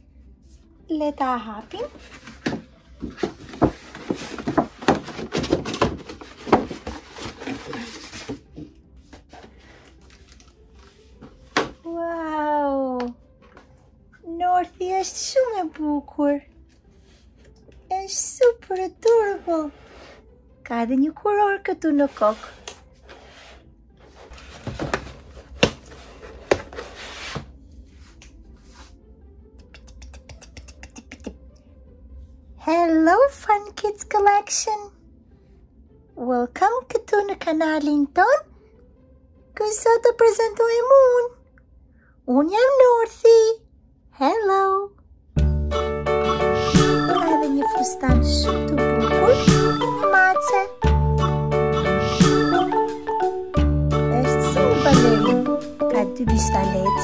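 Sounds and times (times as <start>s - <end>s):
cardboard box being opened: 3.2s - 8.5s
packaging rustling: 3.2s - 8.5s.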